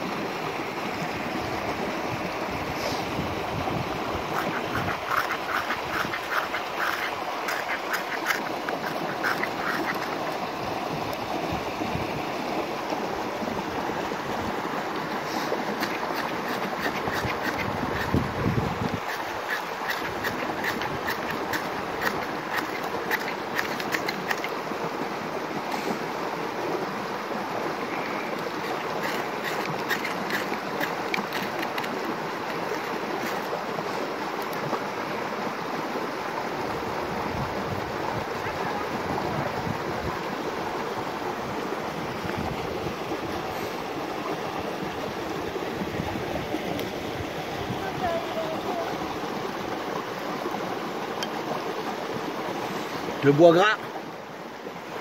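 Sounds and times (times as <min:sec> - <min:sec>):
knife scraping wood shavings: 0:04.4 - 0:10.3, 0:15.7 - 0:18.2, 0:19.0 - 0:24.5, 0:28.6 - 0:33.5.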